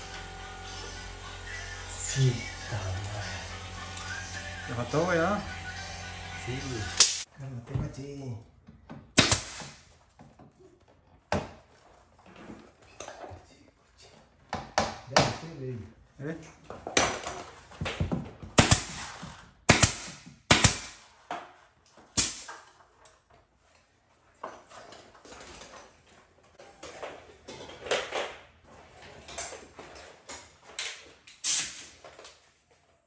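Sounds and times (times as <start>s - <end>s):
nail gun firing: 7.0s - 7.2s, 9.2s - 9.8s, 18.6s - 21.0s, 22.2s - 22.6s.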